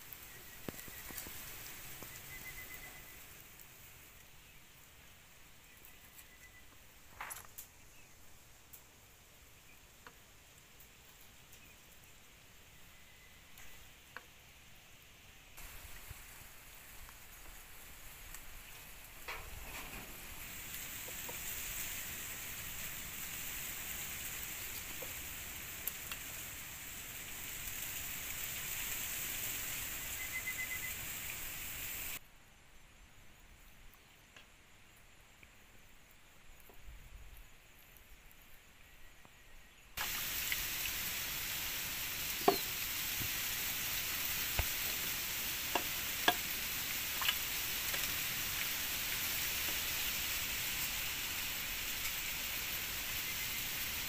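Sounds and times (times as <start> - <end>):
food sizzling in hot oil: 0.0 - 3.6, 15.6 - 32.2, 40.0 - 54.0.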